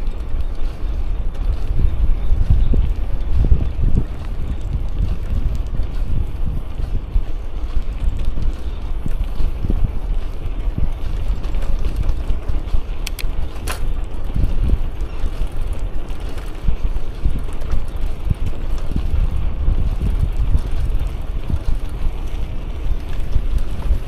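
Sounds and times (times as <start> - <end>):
wind buffeting microphone: 0.0 - 24.0.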